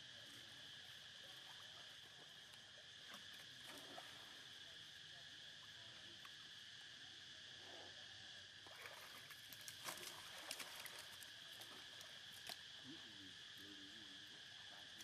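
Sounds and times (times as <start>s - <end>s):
insects chirring: 0.0s - 15.0s
small water splashes: 1.2s - 4.6s, 8.6s - 12.8s.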